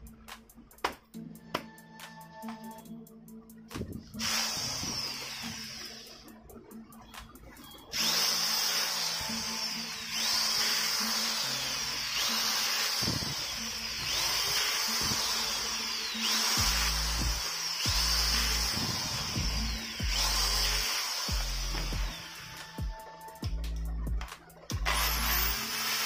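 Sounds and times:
electric screwdriver whining: 4.1 - 6.4, 7.2 - 23.4, 24.7 - 26.0.

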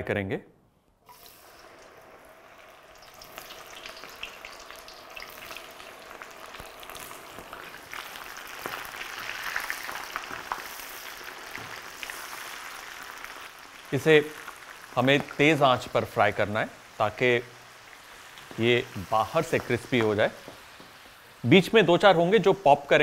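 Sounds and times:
corn deep-frying in hot oil: 1.1 - 23.0.

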